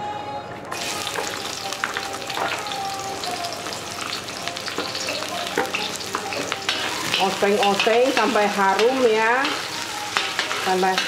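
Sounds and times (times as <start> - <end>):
shallots sizzling in hot oil: 0.7 - 11.0
spatula scraping a pan: 5.7 - 11.0.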